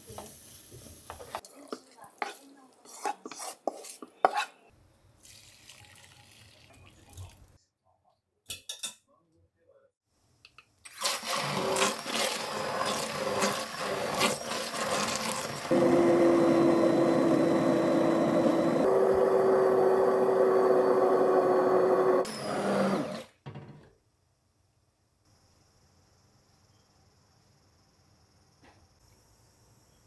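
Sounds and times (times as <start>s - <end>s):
immersion blender running: 11.0s - 23.3s.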